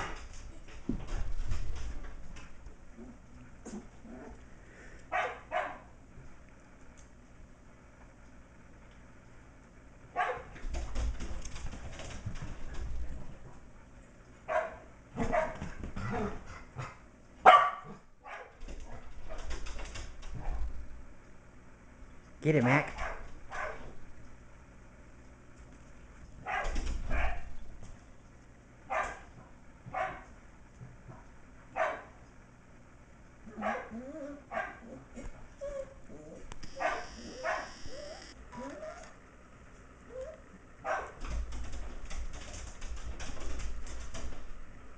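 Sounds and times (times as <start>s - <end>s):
dogs barking: 5.1s - 6.0s, 10.1s - 10.6s, 14.4s - 19.5s, 22.9s - 24.0s, 26.4s - 27.5s, 28.8s - 30.3s, 31.7s - 32.2s, 33.5s - 35.1s, 36.7s - 39.0s, 40.8s - 41.2s
puppies whining: 33.5s - 39.2s, 40.0s - 40.6s
puppies yapping: 35.7s - 39.2s.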